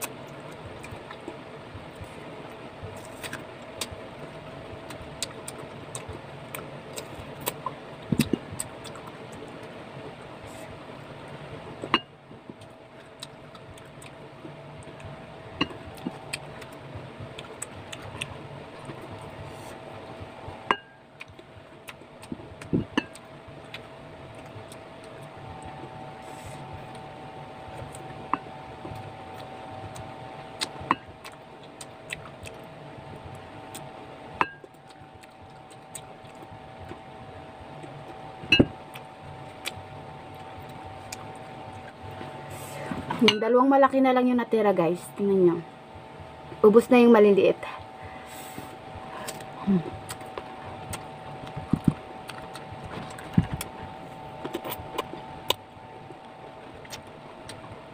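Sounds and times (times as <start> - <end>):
steady background hum: 0.0 - 57.9
chewing: 14.8 - 19.8, 21.2 - 32.7, 34.5 - 37.1, 49.0 - 57.7.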